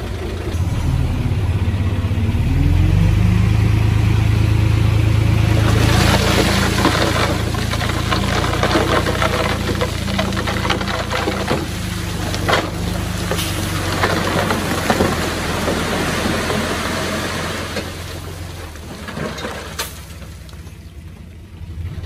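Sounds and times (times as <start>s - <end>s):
bulldozer diesel engine running: 0.0s - 22.0s
knocks and rattles: 6.0s - 16.9s.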